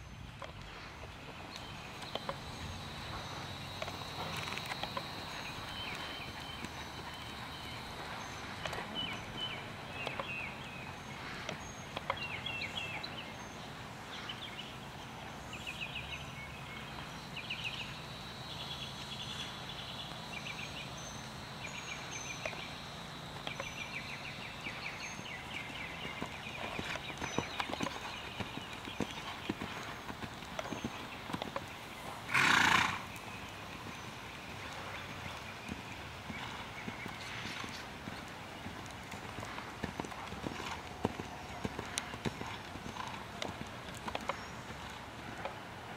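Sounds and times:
horse hooves on sand: 0.0s - 18.0s, 19.0s - 45.9s
birds chirping: 0.0s - 45.9s
horse whinny: 32.3s - 33.1s.

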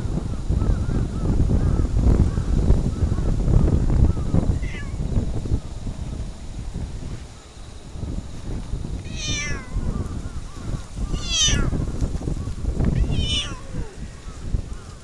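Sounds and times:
cat meowing: 4.6s - 5.0s, 9.1s - 9.9s, 11.1s - 11.8s, 13.0s - 14.0s.

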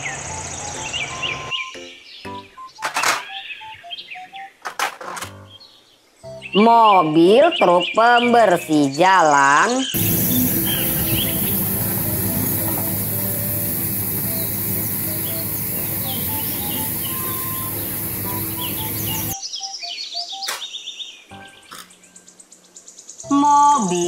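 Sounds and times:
birds chirping: 0.0s - 4.6s, 9.6s - 24.0s
simple tune of short notes: 0.4s - 4.5s, 10.2s - 19.4s
spinning brushes hissing: 10.0s - 19.4s
street sweeper engine humming: 10.0s - 19.4s.

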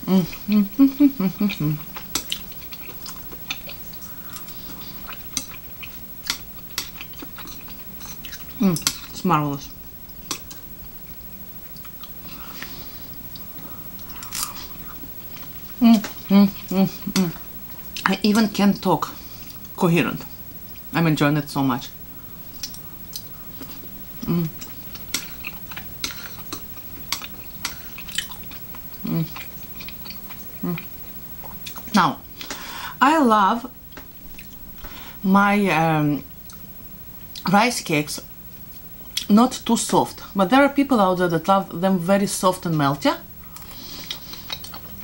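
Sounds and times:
person humming: 0.0s - 1.8s, 15.8s - 17.4s, 24.2s - 24.6s, 29.0s - 29.4s, 30.6s - 30.9s
wet chewing mouth clicks: 1.3s - 9.2s, 22.6s - 32.6s, 43.4s - 44.9s.

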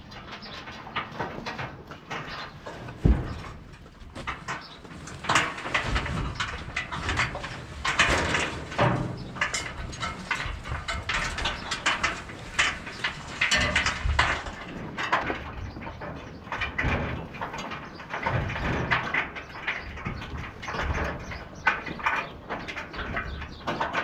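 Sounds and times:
dry hay rustling: 2.1s - 15.0s.

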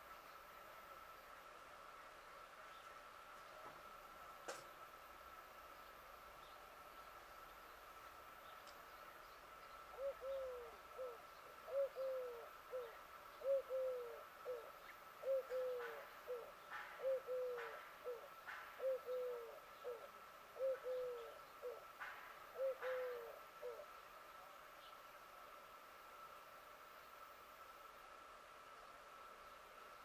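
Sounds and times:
dove cooing: 9.9s - 23.9s.

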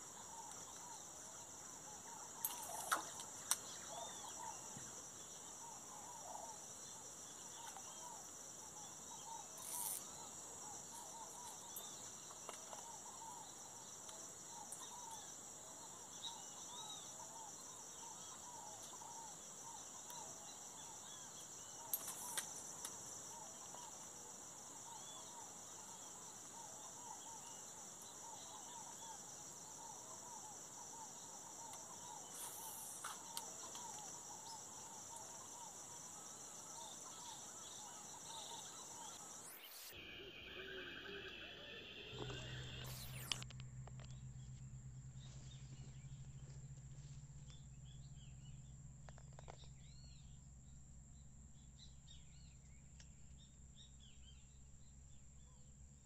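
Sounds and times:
faint short chirping calls: 0.0s - 44.6s
insects trilling: 0.0s - 54.9s.

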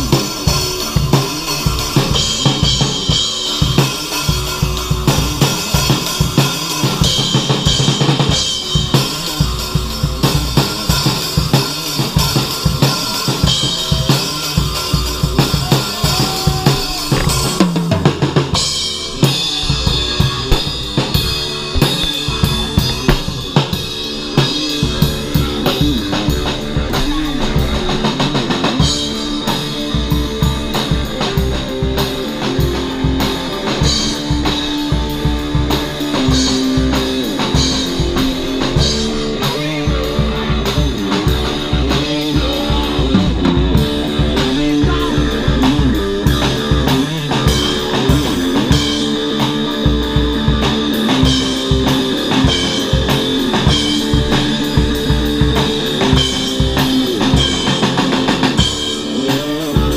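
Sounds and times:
metal band playing: 0.0s - 59.9s
bass drum hits: 19.6s - 24.1s.

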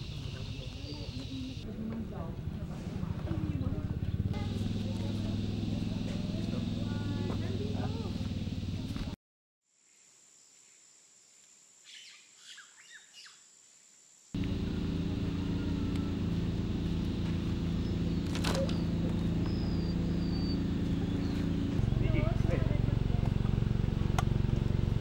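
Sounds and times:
bird chirps: 0.0s - 1.6s, 11.8s - 13.4s, 14.4s - 25.0s
low mechanical hum: 0.0s - 9.2s, 14.4s - 25.0s.

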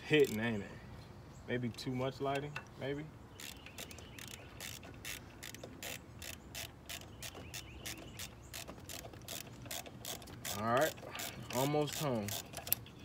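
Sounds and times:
ratchet wrench clicking: 0.0s - 0.4s, 3.4s - 12.9s.

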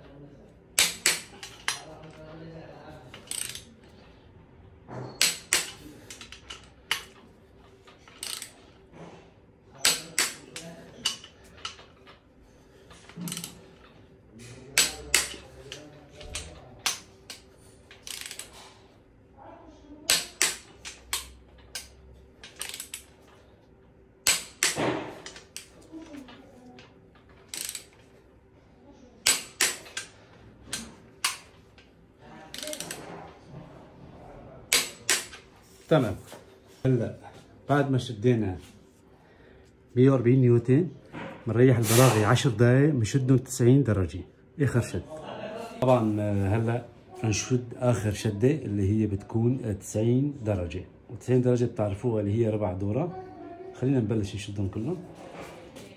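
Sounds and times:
ratchet clicks: 3.2s - 3.7s, 8.0s - 8.6s, 12.9s - 13.7s, 18.0s - 18.7s, 20.1s - 23.3s, 27.4s - 28.1s, 29.2s - 31.5s, 32.5s - 33.1s
torque wrench clicking: 3.2s - 3.7s, 8.1s - 8.6s, 13.1s - 13.6s, 18.0s - 18.6s, 20.1s - 23.1s, 24.2s - 25.8s, 27.5s - 28.0s, 32.5s - 33.0s.

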